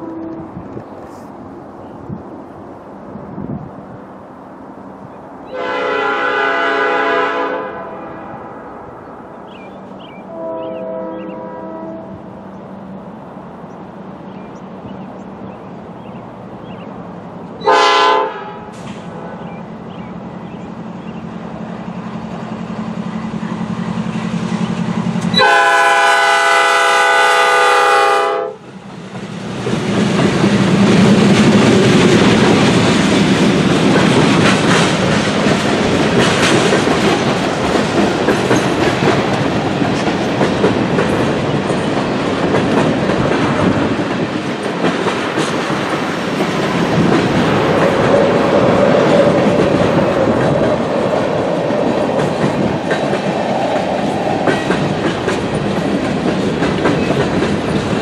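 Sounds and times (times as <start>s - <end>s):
train horn blasts: 0.0s - 0.6s, 5.5s - 8.7s, 10.3s - 12.3s, 17.6s - 19.4s, 25.2s - 28.6s
diesel locomotive engine drone: 0.0s - 58.0s
train wheels rushing on rail: 0.0s - 58.0s
wheels clacking over rail joints: 28.7s - 58.0s.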